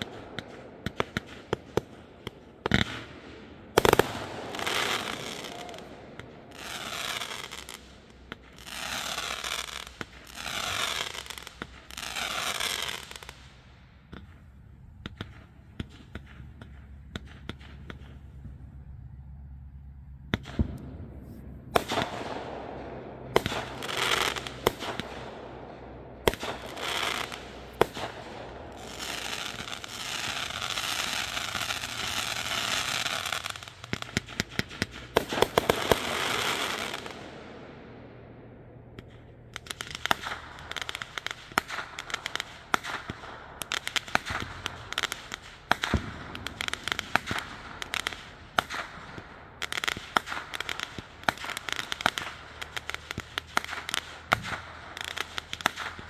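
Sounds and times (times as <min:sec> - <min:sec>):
fireworks cracks and pops: 0:00.0 - 0:18.6, 0:20.3 - 0:37.4, 0:39.0 - 0:56.0
fireworks crackle: 0:00.0 - 0:18.8, 0:20.3 - 0:37.6, 0:39.0 - 0:56.0
fireworks bangs: 0:00.0 - 0:56.0
fireworks hissing rushes: 0:03.8 - 0:13.5, 0:23.2 - 0:25.3, 0:26.3 - 0:37.2.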